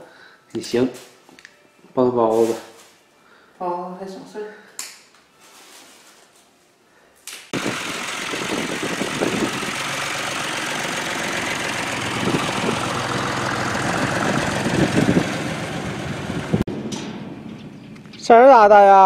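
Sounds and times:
tractor engine running: 7.6s - 18.2s.

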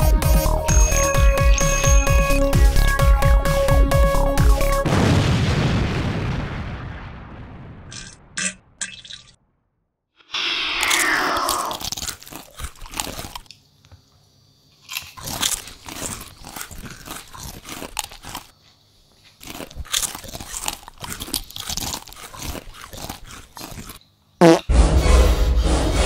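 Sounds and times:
falling swoosh effect: 10.3s - 11.8s
crunching potato chips: 10.8s - 13.6s, 14.8s - 18.6s, 19.2s - 24.0s.

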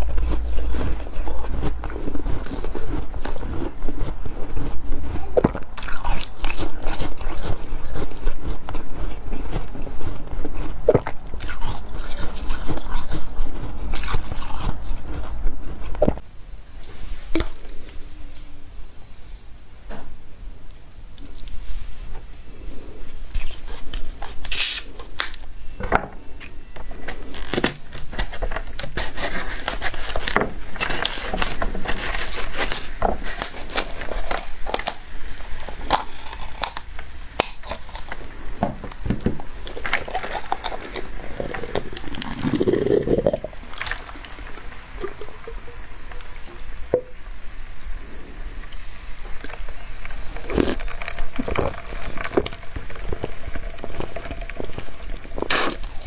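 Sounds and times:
slurping: 0.0s - 16.2s, 28.2s - 47.0s, 47.8s - 56.0s
plastic bottle crackling: 27.1s - 35.0s, 49.2s - 56.0s
icy slush crunching: 28.2s - 38.6s, 48.0s - 56.0s.

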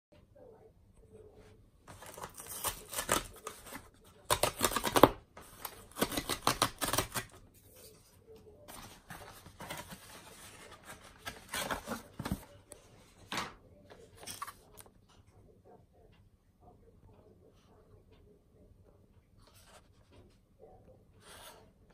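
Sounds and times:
cardboard tearing and rustling: 1.9s - 7.4s, 8.7s - 12.5s.

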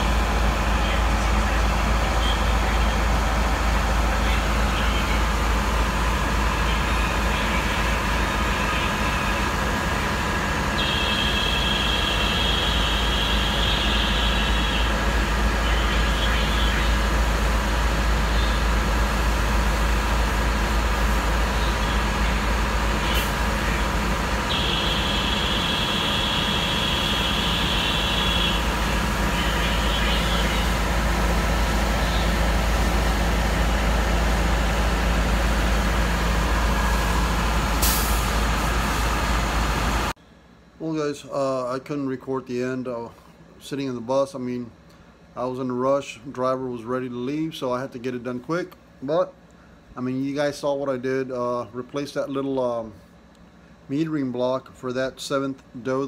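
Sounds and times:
diesel engine running: 0.0s - 42.0s
high steady whine: 0.0s - 43.0s.

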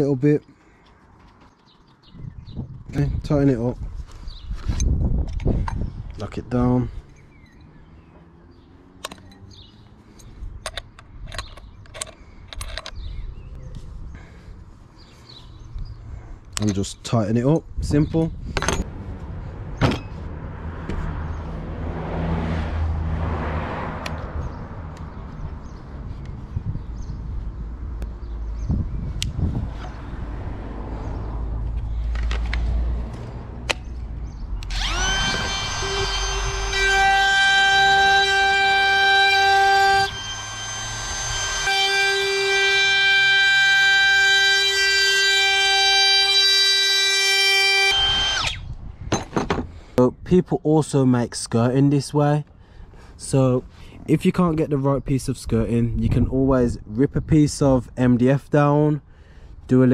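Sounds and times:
tool handling clicks: 9.0s - 9.5s, 10.2s - 13.1s, 32.1s - 34.0s
low rumble: 17.8s - 37.1s
router motor whine: 34.6s - 48.7s.

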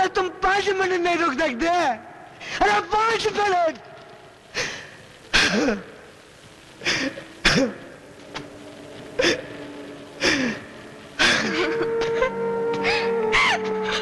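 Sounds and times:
person sobbing: 9.2s - 9.6s, 10.2s - 14.0s.

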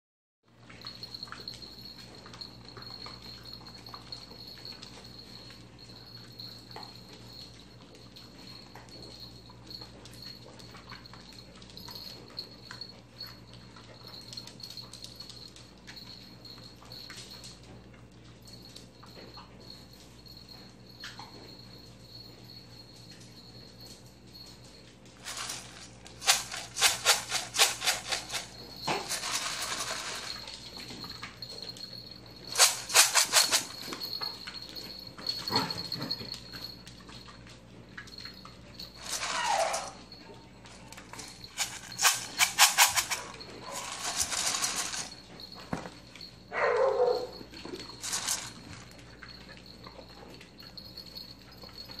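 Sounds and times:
puppies scuffling: 0.7s - 52.0s
puppy yelping: 39.1s - 40.2s, 46.5s - 47.4s.

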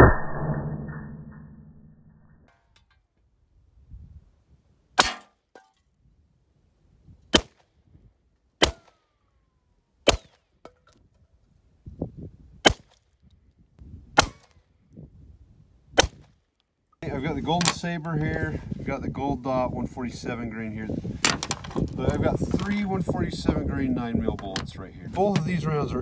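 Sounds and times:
single gunshots: 14.2s - 14.5s.

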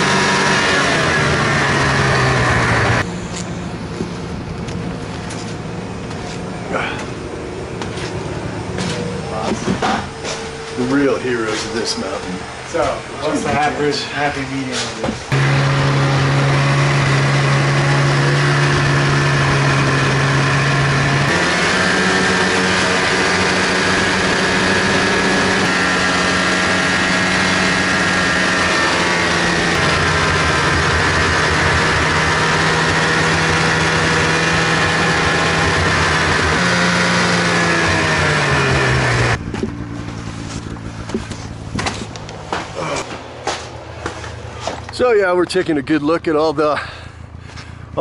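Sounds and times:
snowmobile engine running: 0.0s - 3.1s, 15.3s - 42.2s.

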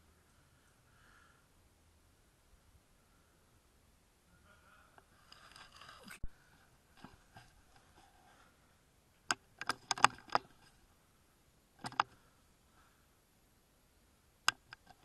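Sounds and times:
rifle bolt clicks and clacks: 9.3s - 10.6s, 11.8s - 12.2s.

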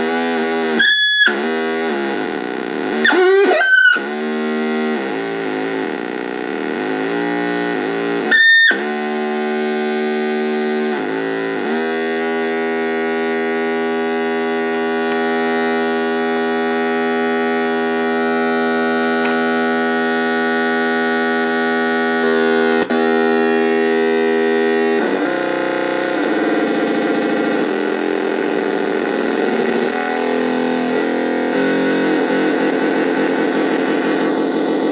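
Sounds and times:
synthesizer buzzing drone: 0.0s - 34.9s
loud electronic chirp: 0.8s - 1.5s, 3.0s - 4.1s, 8.3s - 8.9s.

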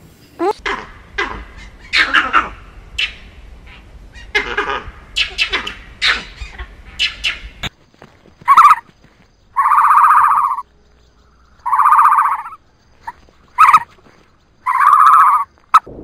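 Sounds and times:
animal buzzy calls: 0.4s - 7.5s, 8.5s - 8.8s, 9.6s - 10.6s, 11.6s - 13.9s, 14.6s - 15.9s.

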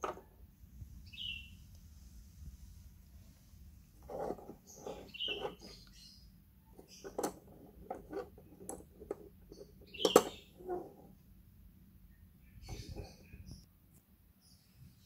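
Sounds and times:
plastic parts squeaking: 4.0s - 6.0s, 6.7s - 11.2s, 12.6s - 13.6s.

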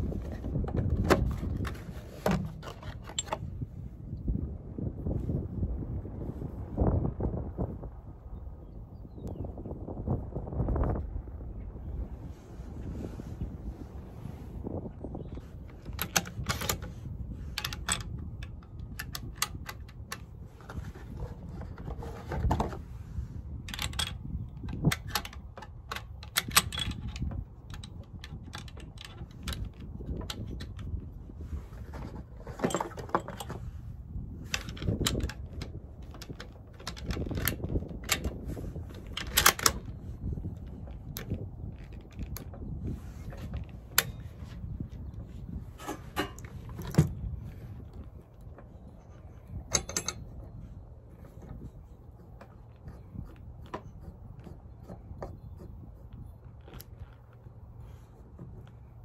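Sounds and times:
wind rumble on microphone: 0.0s - 59.0s.

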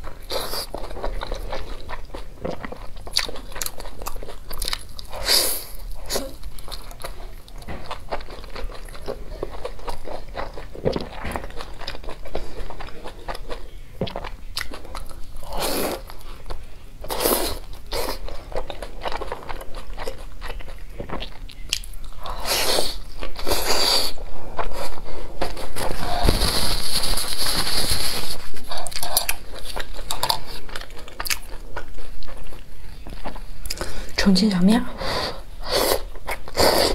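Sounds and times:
crunchy chewing: 0.0s - 34.1s.

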